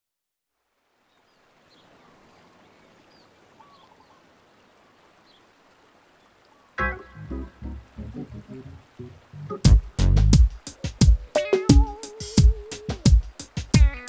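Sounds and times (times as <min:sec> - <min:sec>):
steady hiss: 0:00.5 - 0:14.0
bird chirps: 0:02.6 - 0:04.2
loud music: 0:09.5 - 0:14.0.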